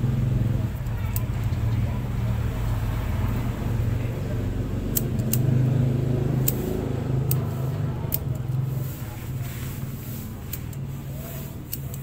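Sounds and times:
low vehicle engine rumble: 0.0s - 12.0s
scissors snipping twigs: 4.9s - 8.7s, 11.5s - 12.0s.

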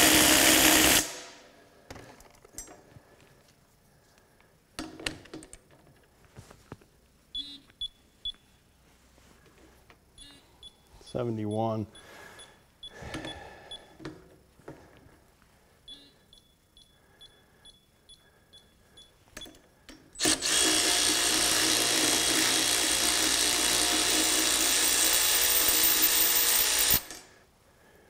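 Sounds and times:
power tool running: 0.0s - 1.3s, 20.2s - 27.1s
short electronic beeps: 7.4s - 8.4s, 10.2s - 13.9s, 15.9s - 19.2s.

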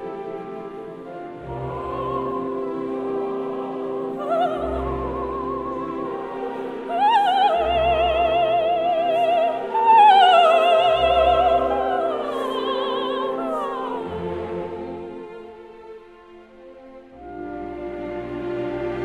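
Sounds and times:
instrumental accompaniment: 0.0s - 19.0s
operatic high voice singing: 1.4s - 15.4s.

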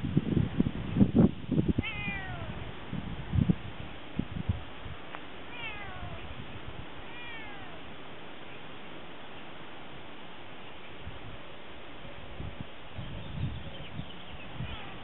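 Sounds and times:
cat meowing: 1.8s - 2.6s, 5.5s - 6.3s, 7.0s - 7.9s, 14.6s - 15.0s.

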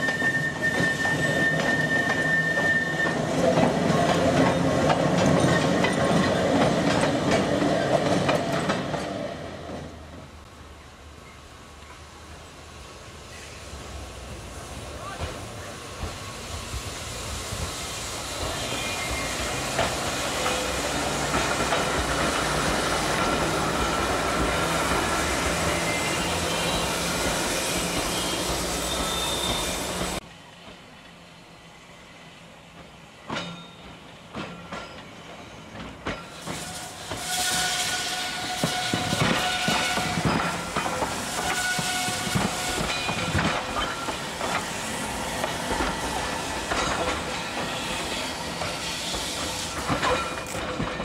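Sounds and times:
tram wheels clicking over rail joints: 0.0s - 10.4s, 15.0s - 26.3s, 32.7s - 51.0s
steady tram hum: 3.1s - 51.0s.

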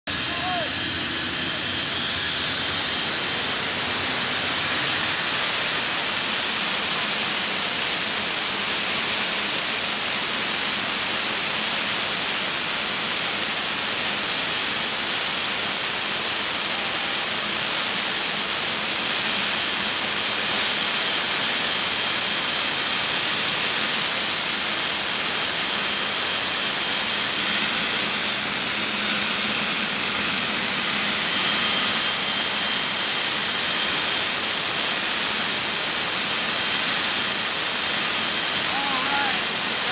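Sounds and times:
turbine engine whine: 0.0s - 39.9s
loud rushing hiss: 37.8s - 39.9s.

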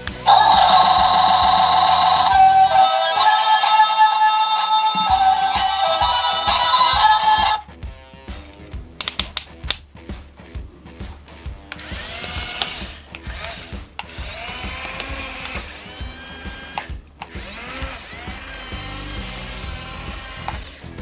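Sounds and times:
small electric motors whining: 11.7s - 20.9s.

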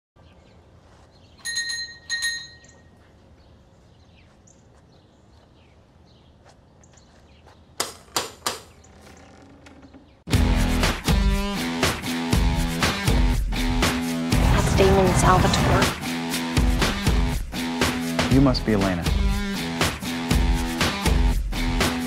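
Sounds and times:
two-note doorbell chime: 1.4s - 2.8s.

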